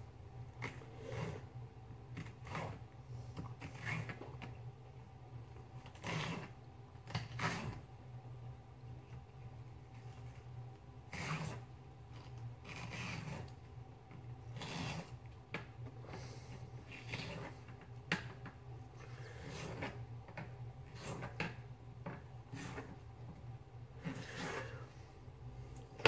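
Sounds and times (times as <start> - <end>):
scraping and rubbing on counter: 0.6 - 2.9, 3.5 - 4.6, 5.8 - 7.8, 11.1 - 13.6, 14.2 - 25.0.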